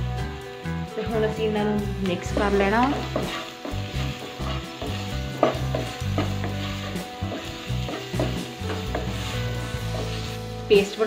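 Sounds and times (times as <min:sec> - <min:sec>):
onions sizzling in butter: 0:00.0 - 0:11.0
spatula scraping and tapping pan: 0:02.3 - 0:10.4.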